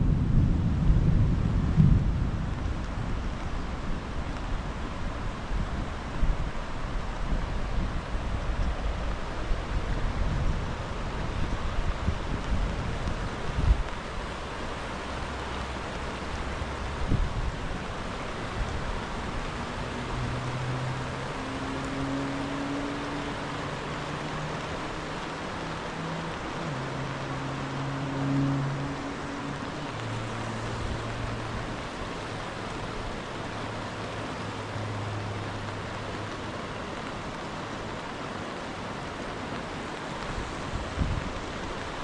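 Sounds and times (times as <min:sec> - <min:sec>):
wind thumps on microphone: 0:00.0 - 0:03.5
rain: 0:00.0 - 0:42.0
water rushing over rapids: 0:00.0 - 0:42.0.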